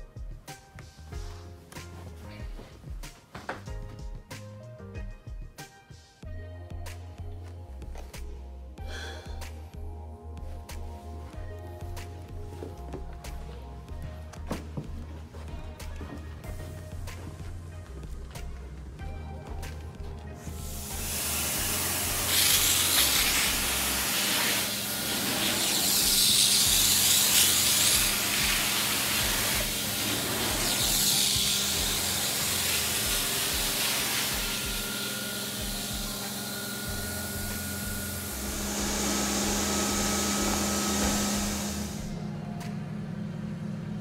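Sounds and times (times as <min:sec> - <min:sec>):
machine hum: 0:12.3 - 0:44.0
extraction wand hissing: 0:20.5 - 0:42.2.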